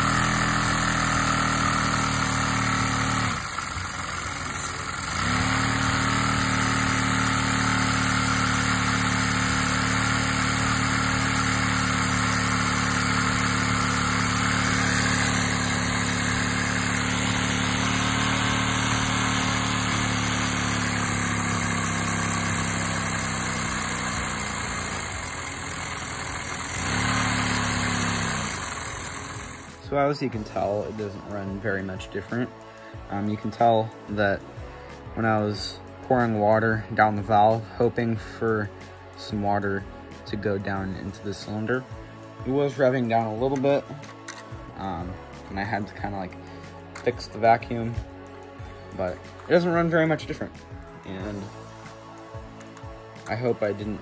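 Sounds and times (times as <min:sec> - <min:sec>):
vacuum cleaner hum: 0:00.0 - 0:29.9.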